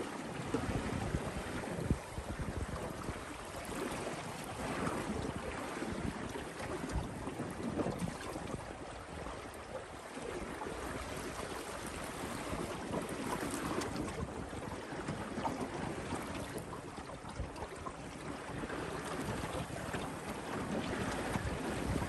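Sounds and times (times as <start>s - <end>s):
water splashing along hull: 0.0s - 22.0s
wind on microphone: 0.0s - 22.0s.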